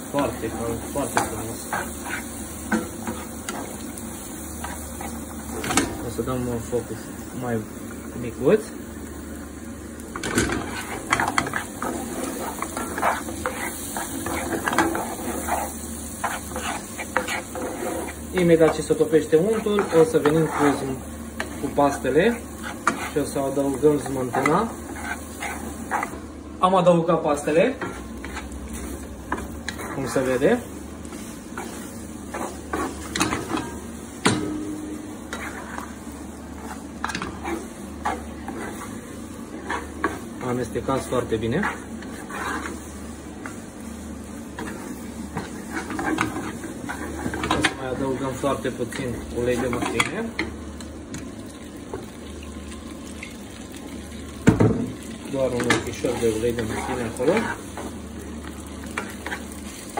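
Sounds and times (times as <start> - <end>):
spaghetti sizzling in butter: 0.0 - 59.9
wooden spoon scraping frying pan: 0.1 - 6.0, 10.2 - 26.2, 27.7 - 33.9, 35.1 - 50.5, 55.5 - 58.0, 58.8 - 59.9.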